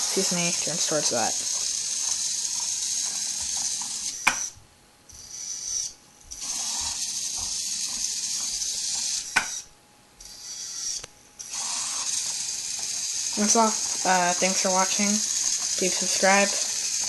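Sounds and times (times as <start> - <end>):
servo motors whining: 0.0 - 17.0
motor cutting off with a click: 5.2 - 9.6, 10.2 - 17.0
brief servo whir: 5.2 - 14.1.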